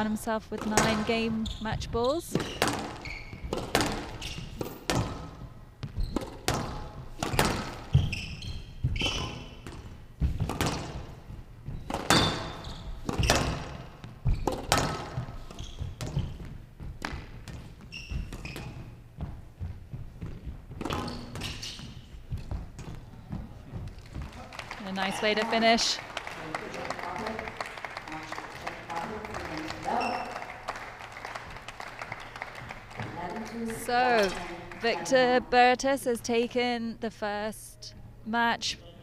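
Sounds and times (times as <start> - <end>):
squash ball knocks: 0.6 - 1.2, 2.3 - 8.1, 8.8 - 11.2, 11.8 - 19.3
shoes squeaking on court: 0.6 - 24.4, 29.8 - 30.5.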